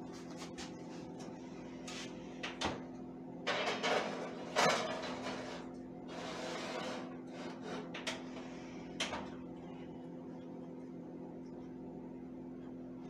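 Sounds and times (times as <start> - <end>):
low steady hum: 0.0 - 13.0
oven door scraping: 3.5 - 8.3.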